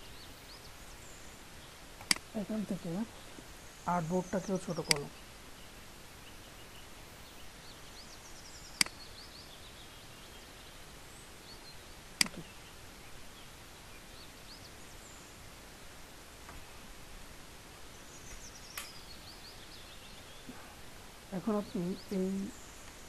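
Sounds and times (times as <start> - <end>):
faint bird chirps: 0.0 - 15.5, 17.8 - 23.0
low hiss: 0.0 - 23.0
computer mouse clicks: 12.2 - 12.4.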